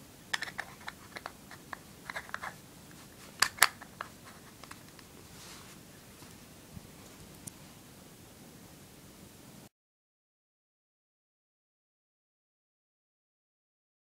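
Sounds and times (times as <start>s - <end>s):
lens cap clicks and crackles: 0.4s - 2.6s, 3.4s - 5.0s.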